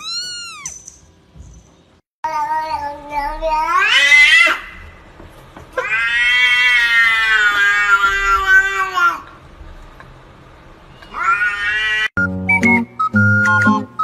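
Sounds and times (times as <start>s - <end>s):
cat meowing: 0.0s - 0.7s, 5.8s - 9.2s, 11.0s - 12.1s.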